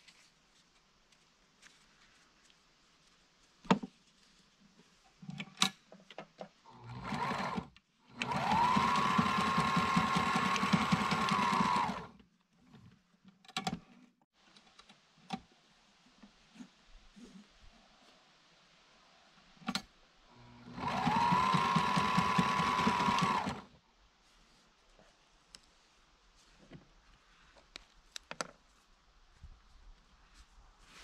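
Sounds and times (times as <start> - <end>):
sewing machine stitching: 6.8 - 12.1, 20.5 - 23.7.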